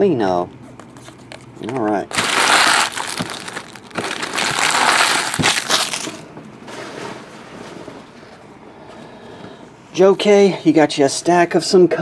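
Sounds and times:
foil wrappers crinkling: 0.8 - 6.2.

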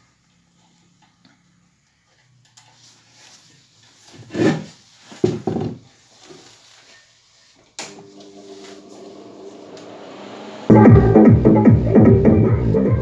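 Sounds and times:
wires rubbing and knocking: 2.8 - 6.6
speaker hum: 6.4 - 13.0.

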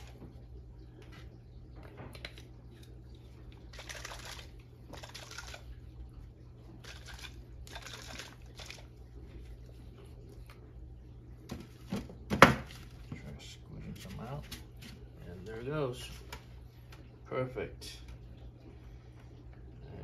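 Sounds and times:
steady low hum: 0.0 - 20.0
liquid swishing in shaken bottle: 6.8 - 10.2.

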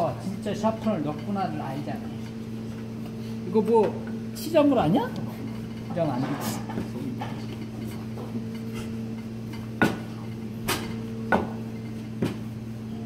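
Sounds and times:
steady low hum: 0.0 - 13.0
sharp knocks on cutting board: 9.8 - 10.1.

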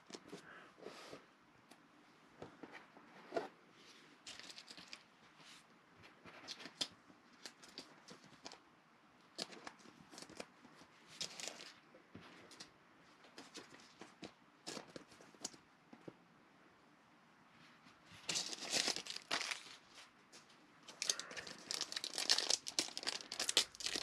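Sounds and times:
plastic sleeve crinkling: 18.2 - 20.0, 20.9 - 24.0.

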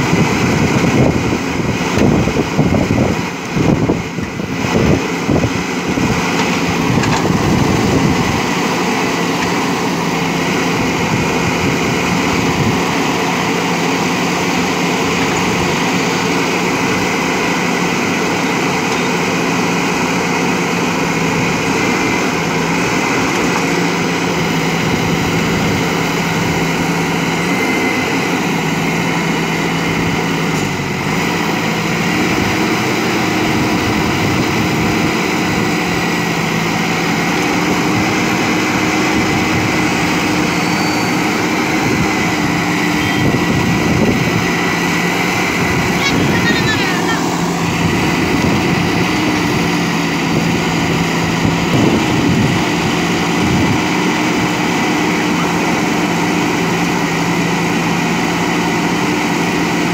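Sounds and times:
diesel engine running: 0.0 - 59.9
higher tone: 42.8 - 43.6.

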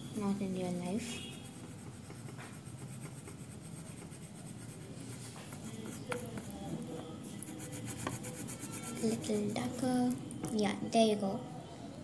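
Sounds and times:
pencil shading on paper: 0.2 - 6.7, 7.4 - 9.8.

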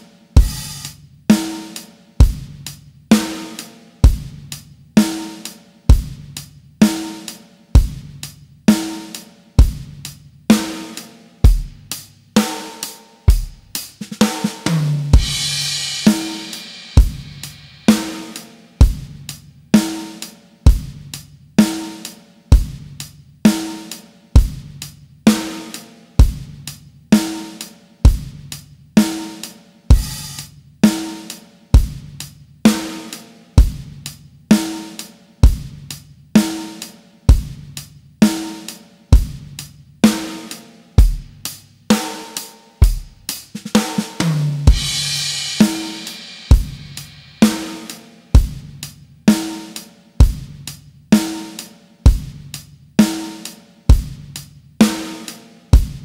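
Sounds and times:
drum kit beat: 0.0 - 56.0
cymbal crash: 14.3 - 18.6, 43.8 - 48.5.

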